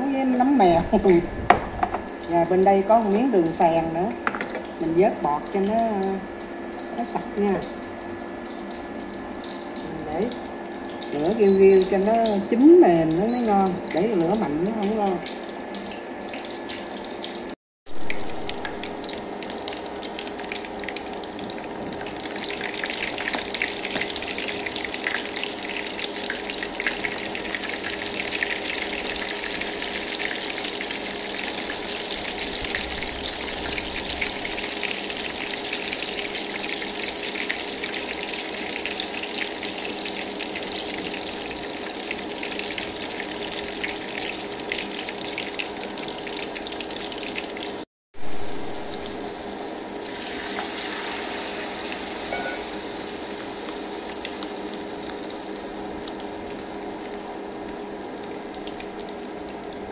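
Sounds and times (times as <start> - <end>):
fritters sizzling in hot oil: 20.8 - 58.4.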